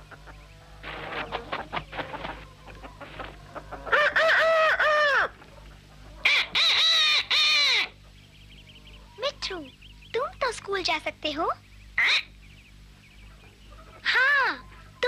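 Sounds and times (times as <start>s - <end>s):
cartoon rooster crowing: 3.9s - 5.3s
parrot imitating crow: 6.2s - 8.0s, 12.0s - 12.3s.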